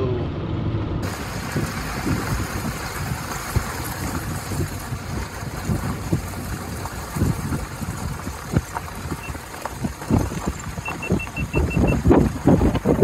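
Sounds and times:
low rumble: 0:00.0 - 0:13.0
wind buffeting microphone: 0:01.0 - 0:13.0
short high-pitched beeps: 0:10.8 - 0:12.0.

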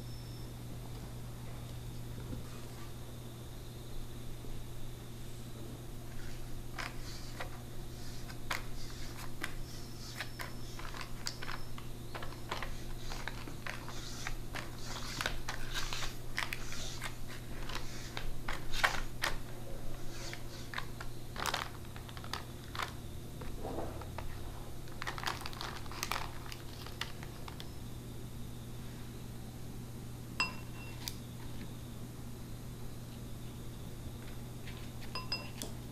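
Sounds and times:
low steady hum: 0:00.0 - 0:35.9
spatula scraping cake batter: 0:06.1 - 0:19.0
paper crinkling: 0:06.1 - 0:27.7.

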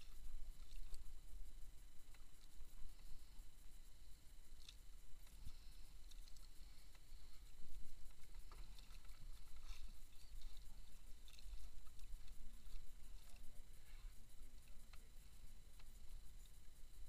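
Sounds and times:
water lapping against boat hull: 0:05.2 - 0:16.1.

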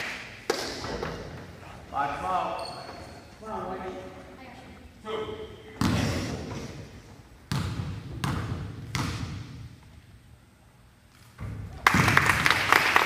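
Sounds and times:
basketball bouncing on gym floor: 0:05.8 - 0:06.6, 0:07.4 - 0:09.9.

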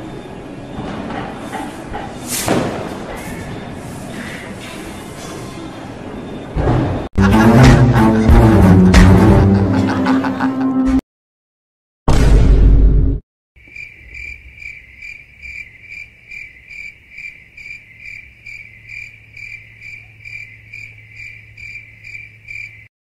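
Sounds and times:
cricket chirping: 0:13.6 - 0:22.9.

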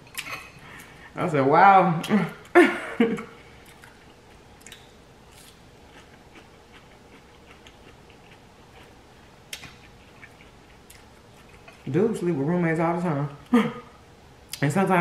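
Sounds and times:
person chewing food: 0:03.6 - 0:11.9.

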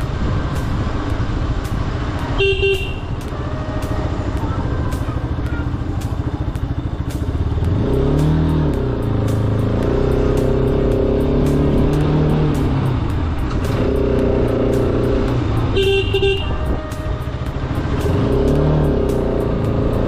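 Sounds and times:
motorcycle engine running: 0:00.0 - 0:20.0
horn beep: 0:02.3 - 0:04.3, 0:15.7 - 0:18.2.

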